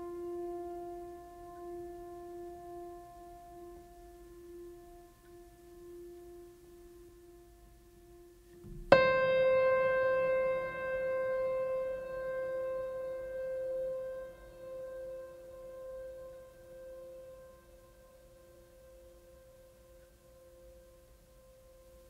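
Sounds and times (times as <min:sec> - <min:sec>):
piano note ringing: 0:00.0 - 0:20.8
soft held music tones: 0:00.0 - 0:22.0.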